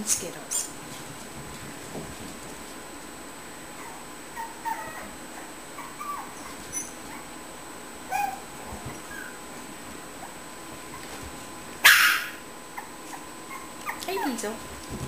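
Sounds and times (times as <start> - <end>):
puppies whimpering and yipping: 3.8 - 7.3, 8.1 - 9.4, 11.9 - 14.5.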